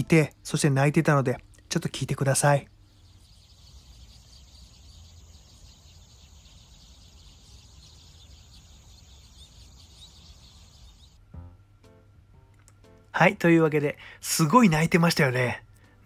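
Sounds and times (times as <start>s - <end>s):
many birds chattering: 0.2s - 11.2s.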